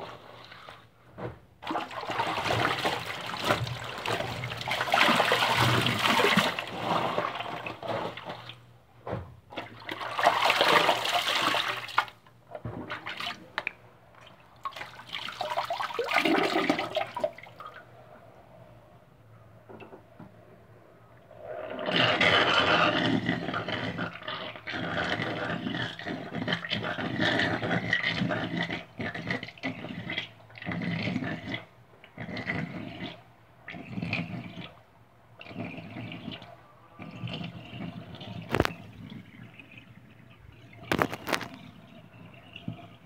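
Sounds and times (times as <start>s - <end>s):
water rushing and sloshing: 1.6s - 8.5s.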